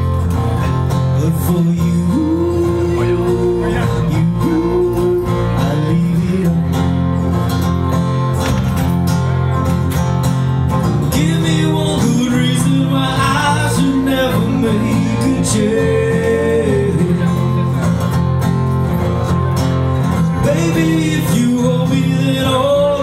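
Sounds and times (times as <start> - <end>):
electric bass line: 0.0 - 23.0
strummed acoustic guitar: 0.0 - 23.0
man singing: 0.6 - 7.3, 11.0 - 17.9, 20.1 - 23.0.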